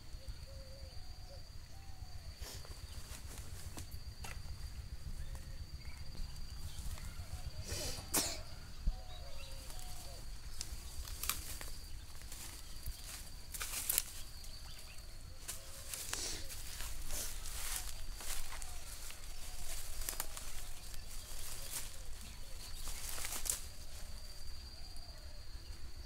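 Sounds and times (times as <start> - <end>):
cough-like sound: 7.9 - 8.5.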